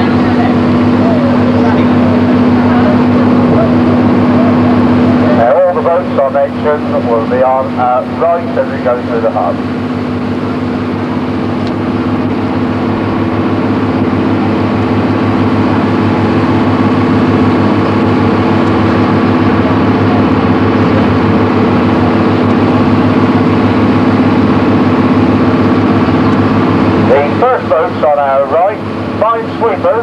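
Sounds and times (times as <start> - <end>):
boat engine humming: 0.0 - 30.0.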